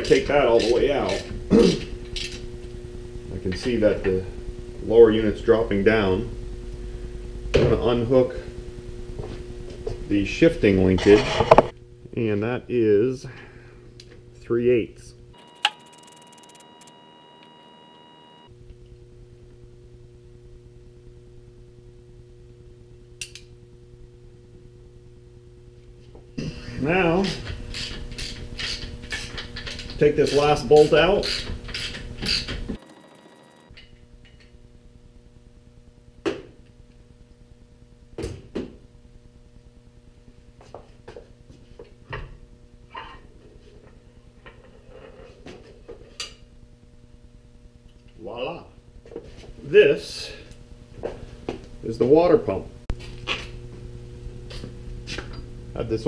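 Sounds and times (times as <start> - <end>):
low steady hum: 0.0 - 31.8, 32.6 - 56.0
faint steady tones: 15.0 - 18.6.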